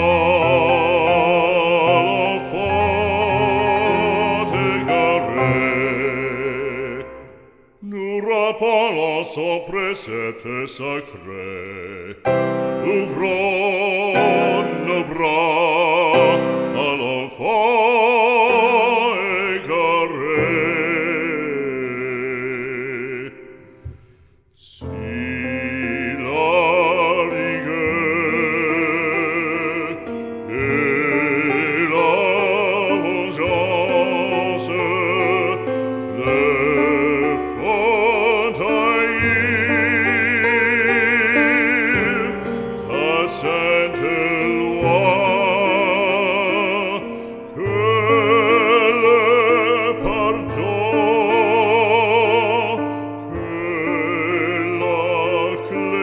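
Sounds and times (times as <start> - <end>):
operatic singing with vibrato: 0.0 - 56.0.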